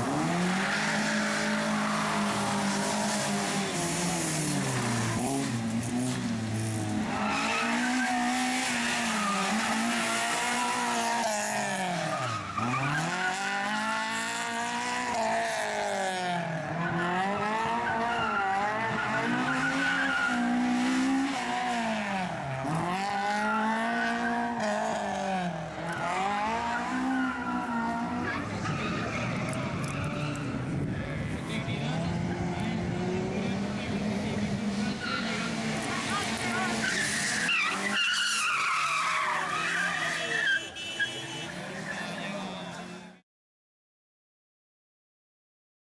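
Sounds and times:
car engine revving: 0.0s - 40.4s
tyres squealing: 34.8s - 42.5s.

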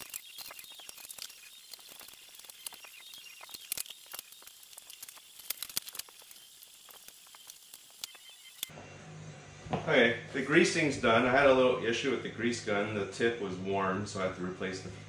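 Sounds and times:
tools and parts clicking: 0.0s - 8.7s.

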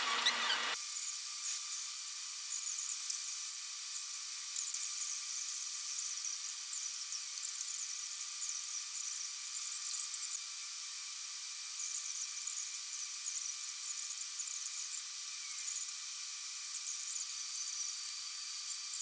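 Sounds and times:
high-pitched hiss: 0.0s - 19.0s.

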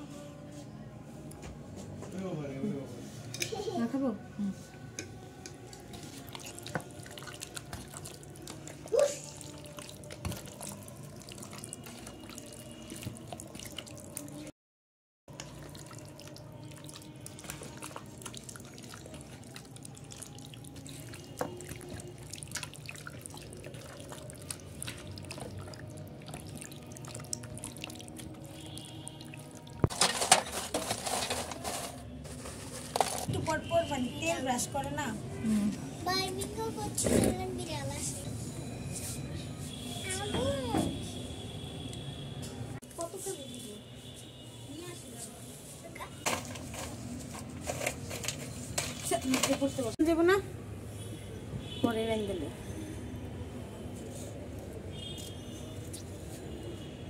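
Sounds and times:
wet squelching of marinade: 5.6s - 14.5s, 15.3s - 29.9s
charcoal rustling and clattering: 29.9s - 33.4s, 46.2s - 49.9s.

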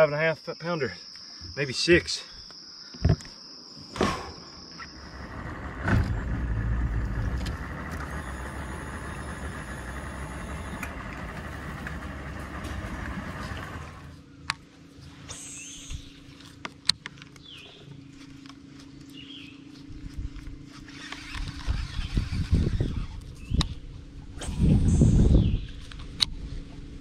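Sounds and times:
steady hum: 4.4s - 27.0s
boat motor running: 5.0s - 14.3s.

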